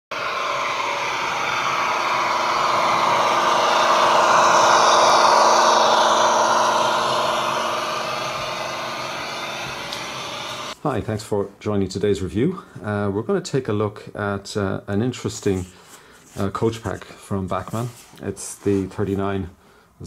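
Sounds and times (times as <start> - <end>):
model locomotive engine sound: 0.1 - 10.8
model train running noise: 0.1 - 10.8.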